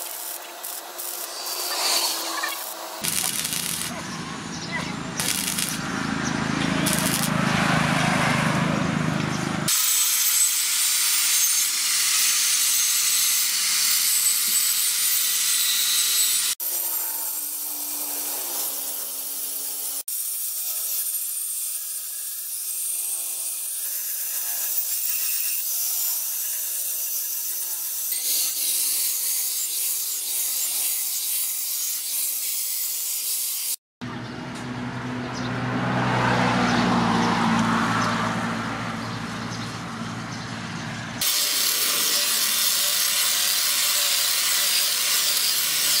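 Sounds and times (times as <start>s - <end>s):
welding arc crackling: 0.0s - 4.2s, 5.2s - 6.0s, 6.7s - 7.5s, 41.2s - 46.0s
angle grinder grinding steel: 0.0s - 7.8s, 9.6s - 33.8s, 41.2s - 46.0s.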